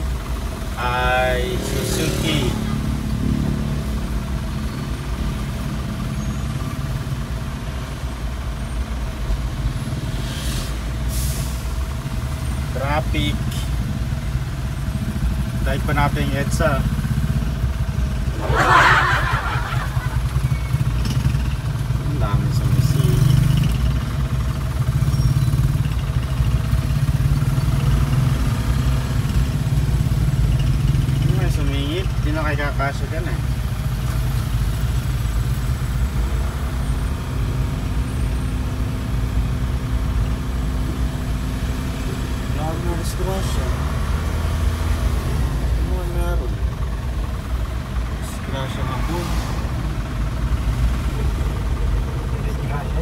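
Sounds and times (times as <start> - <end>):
car engine idling: 0.0 - 10.1, 10.8 - 53.0
short hiss: 10.2 - 11.6.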